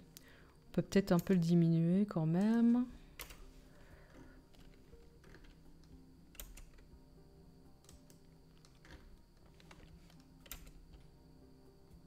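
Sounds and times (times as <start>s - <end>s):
low steady hum: 0.0s - 12.0s
keyboard and mouse clicks: 2.4s - 3.4s, 4.5s - 6.9s, 7.8s - 11.1s.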